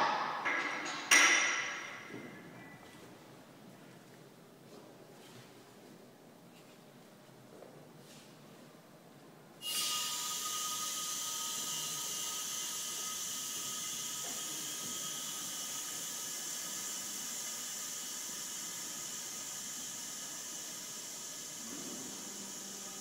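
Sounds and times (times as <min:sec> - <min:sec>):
compressed air hissing: 0:09.6 - 0:23.0.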